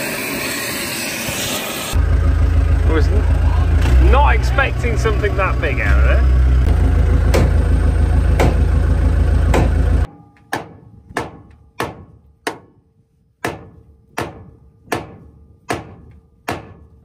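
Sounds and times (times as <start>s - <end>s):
loud engine running: 0.0s - 10.1s
sharp knocks: 7.2s - 7.6s, 8.3s - 8.8s, 9.4s - 12.8s, 13.4s - 16.9s.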